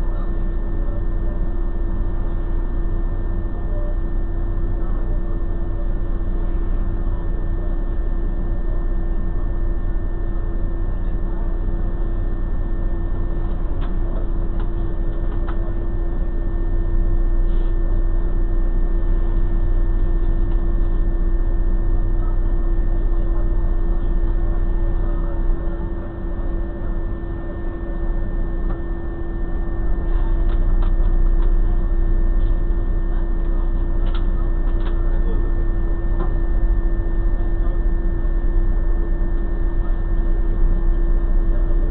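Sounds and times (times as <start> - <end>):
constant hum tone: 0.0 - 41.9
car engine rumble: 10.2 - 41.9.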